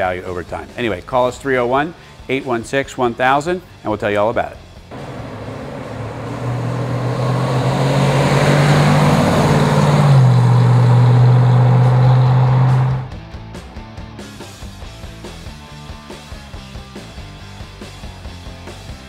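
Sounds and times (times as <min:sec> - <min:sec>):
car engine driving by: 0:04.9 - 0:13.2.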